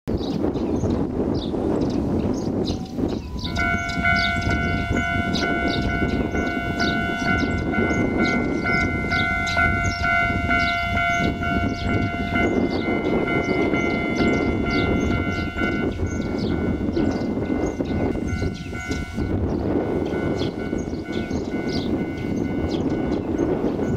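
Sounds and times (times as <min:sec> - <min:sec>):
level crossing warning bell ringing: 0:02.7 - 0:23.9.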